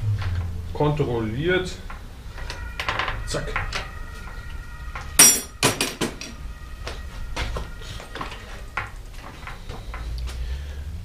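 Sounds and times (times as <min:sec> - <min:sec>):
metal tool clanking: 0:05.2 - 0:06.2.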